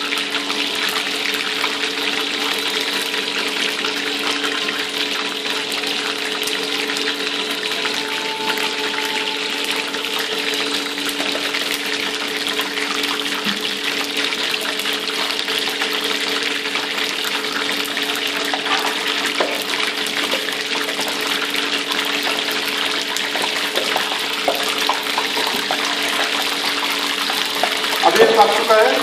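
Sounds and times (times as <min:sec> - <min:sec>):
oil sizzling and crackling: 0:00.0 - 0:29.0
low hum: 0:07.4 - 0:12.8.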